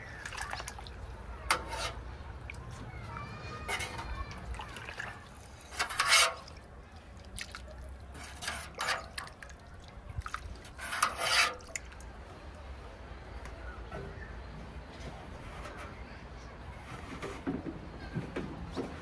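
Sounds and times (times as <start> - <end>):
liquid splashing in spurts: 0.0 - 2.8, 3.6 - 12.2
small drips and clicks: 0.2 - 1.0, 6.4 - 8.2, 11.6 - 12.1.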